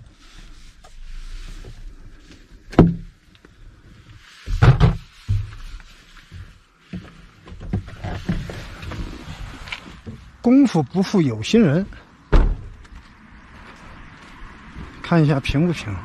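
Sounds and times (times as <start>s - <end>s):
knocks and clunks in truck cab: 2.7s - 3.1s, 12.3s - 12.8s.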